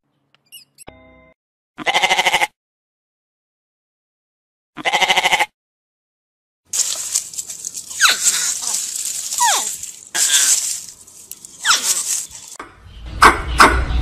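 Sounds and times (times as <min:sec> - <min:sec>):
sheep bleating: 0:01.8 - 0:02.6, 0:04.8 - 0:05.5
hedgehog snuffling and sniffing: 0:06.7 - 0:12.6
squeaky falling calls: 0:06.8 - 0:12.6.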